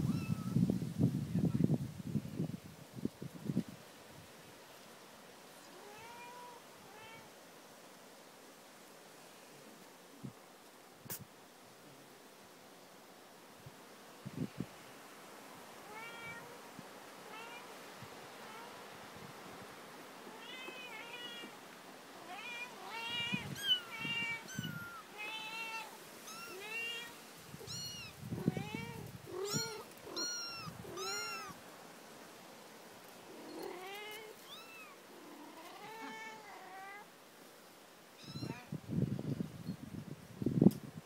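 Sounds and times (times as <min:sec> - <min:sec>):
kittens mewing: 0:22.3 - 0:31.6.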